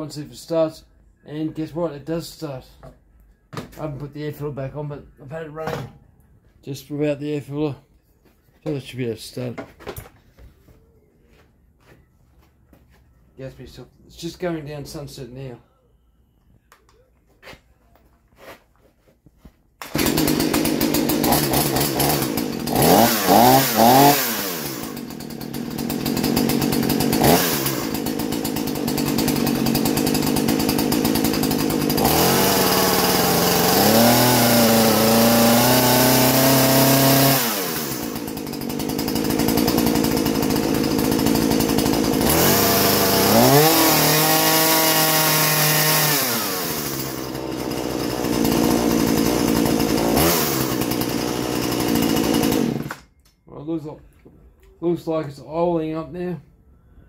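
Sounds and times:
chainsaw idling and revving: 19.8s - 53.1s.

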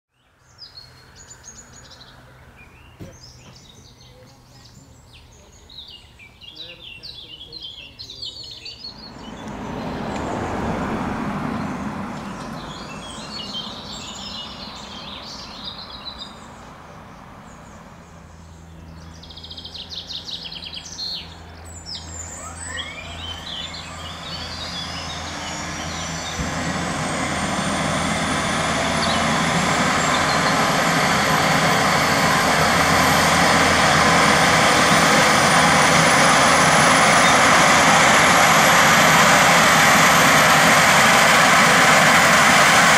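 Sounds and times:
birds chirping: 0.1s - 42.9s
rising turbine whine: 8.6s - 42.9s
helicopter turbine engine starting: 8.8s - 42.9s.

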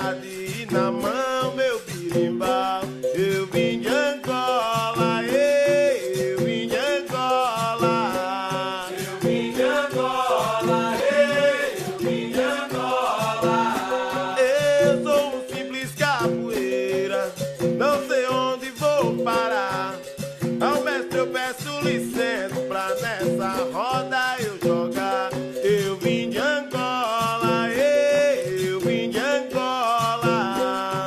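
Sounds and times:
berimbaus: 0.0s - 23.6s
person singing melody: 0.0s - 25.0s
hand drum rhythm: 0.0s - 31.0s.

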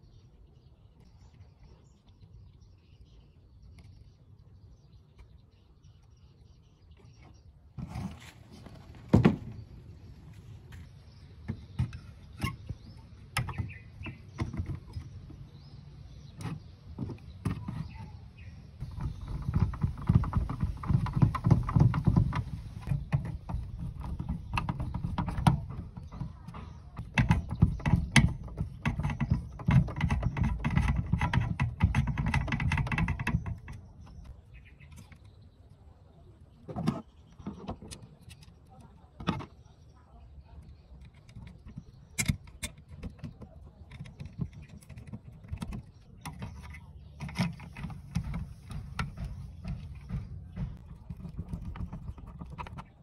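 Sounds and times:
clicks and knocks of plastic parts: 18.8s - 35.4s, 40.6s - 53.0s.

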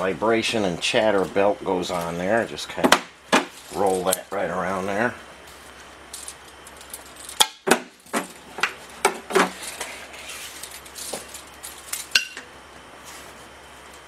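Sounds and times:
metallic clinks and clanks: 6.1s - 7.5s.

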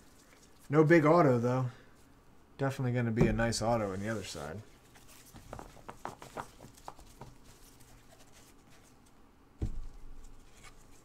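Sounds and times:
dull thump: 3.2s - 3.7s, 9.6s - 10.0s
packaging rustling: 4.8s - 8.9s.

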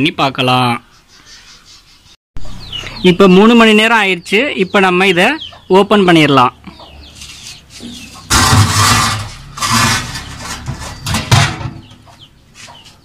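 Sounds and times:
metal lid scraping on brick: 7.2s - 11.8s.

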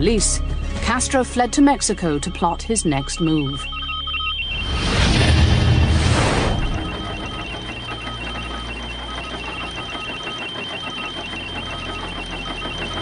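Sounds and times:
high electronic tone: 0.0s - 13.0s
short beeps at two pitches: 2.4s - 4.8s
low drone: 3.7s - 10.0s.

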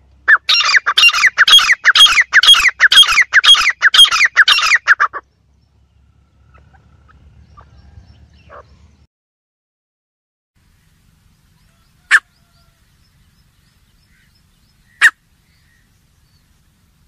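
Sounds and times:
bird shrill calling: 0.3s - 5.3s, 6.4s - 9.0s, 11.5s - 16.7s
faint low rumble: 5.2s - 9.1s.

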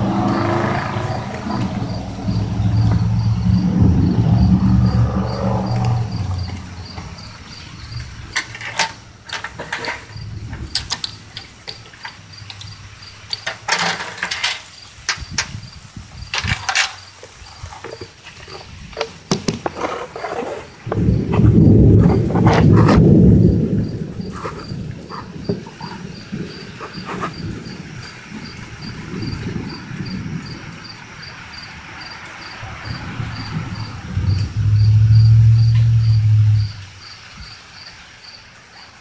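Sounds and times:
low rumble: 0.0s - 8.4s, 10.1s - 11.3s, 20.9s - 26.6s, 32.6s - 37.0s
sharp clicks and rasps: 0.0s - 15.6s
cricket chirping: 0.0s - 39.0s.

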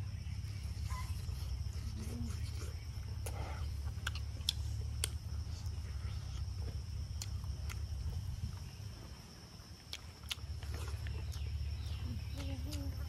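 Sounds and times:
insects buzzing: 0.0s - 13.0s
person chewing food: 1.3s - 13.0s.

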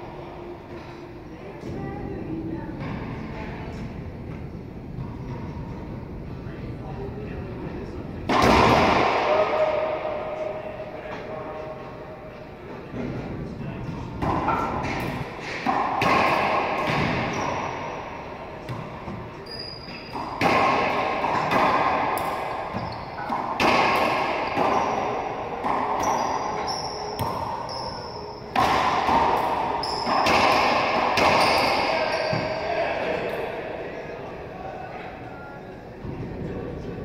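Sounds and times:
racquetball hits echoing: 8.2s - 12.0s, 12.9s - 34.4s
sneakers squeaking on hardwood: 16.8s - 18.0s, 18.6s - 20.4s, 22.5s - 23.6s, 25.7s - 28.8s, 31.2s - 32.8s.

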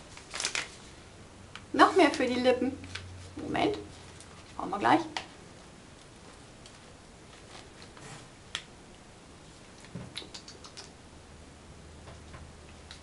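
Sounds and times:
packaging handling: 0.1s - 0.8s.

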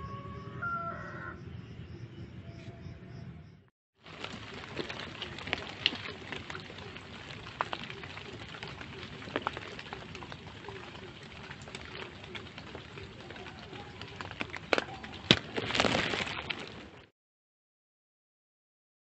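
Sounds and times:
raindrop ticks: 4.1s - 16.8s.

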